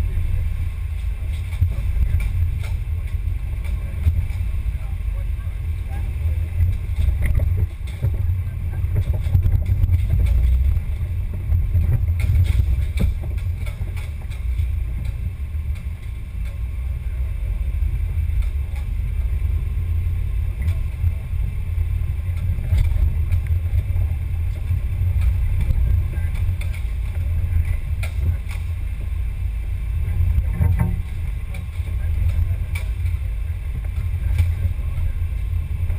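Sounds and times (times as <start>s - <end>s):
chassis vibration and motor rumble: 0.0s - 35.9s
small clicks and rattles: 6.6s - 16.7s, 22.3s - 28.8s.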